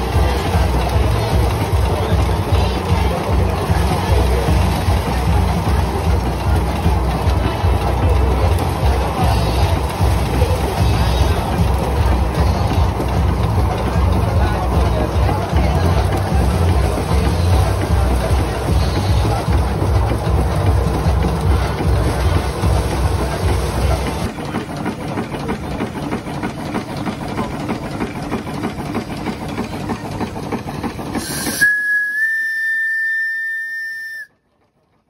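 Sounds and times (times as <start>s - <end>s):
steam engine running rhythmically: 0.0s - 35.0s
steam whistle blowing: 31.2s - 34.4s.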